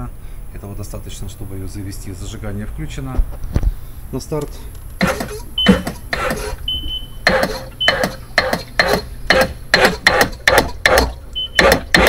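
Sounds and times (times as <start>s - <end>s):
electric starter cranking: 5.0s - 12.0s.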